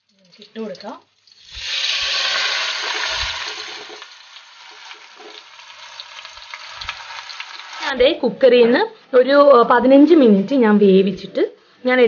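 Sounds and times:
chicken sizzling in hot oil: 0.0s - 8.0s.

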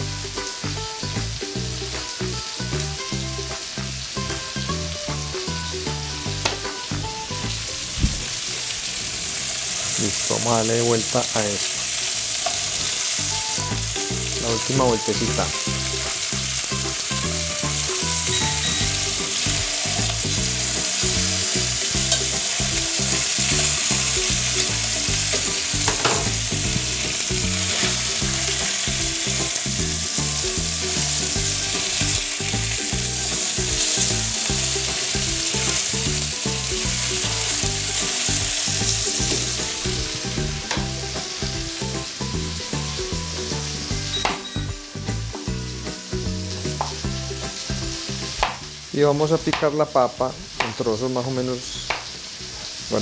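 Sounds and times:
chicken sizzling in a pan: 0.0s - 53.0s.

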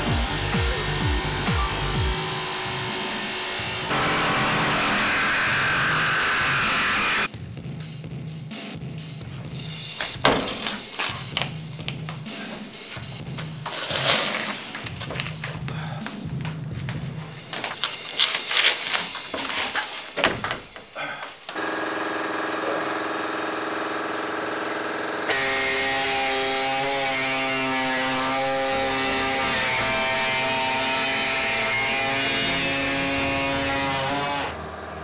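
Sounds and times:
power tool cutting metal: 0.0s - 7.3s, 21.6s - 34.8s
knocks and clatter: 10.0s - 12.7s, 18.8s - 21.6s.

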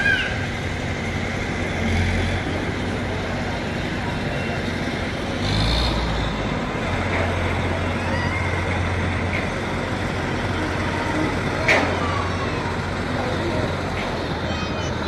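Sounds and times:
diesel machinery engine humming: 0.0s - 15.0s.

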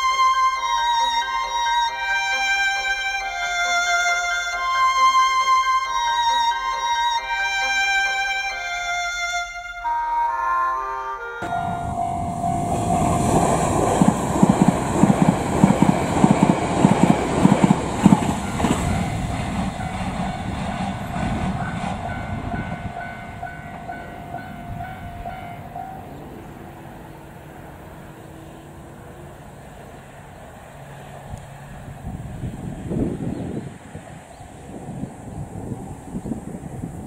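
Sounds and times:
train steady whine: 0.0s - 37.0s
train wheels clattering: 11.4s - 26.5s.

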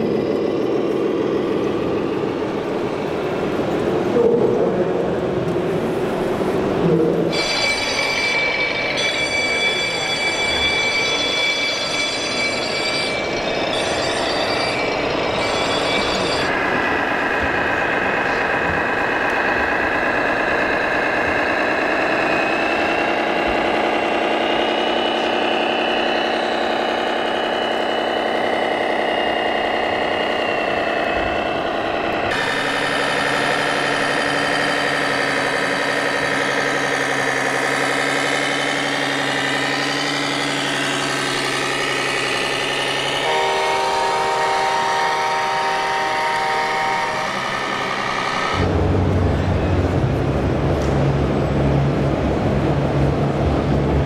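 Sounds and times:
diesel engine sound from loudspeaker: 16.5s - 31.6s, 32.3s - 54.0s
multi-tone air horn: 43.2s - 48.0s.

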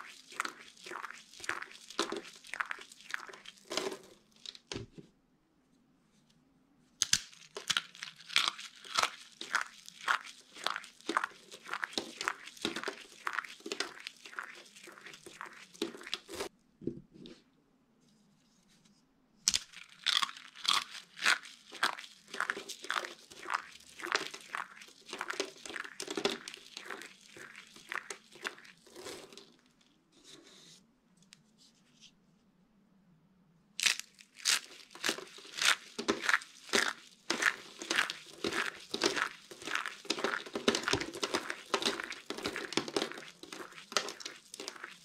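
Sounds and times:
soap shavings crunching by hand: 0.0s - 4.7s, 7.0s - 16.5s, 19.5s - 29.8s, 33.8s - 45.0s.

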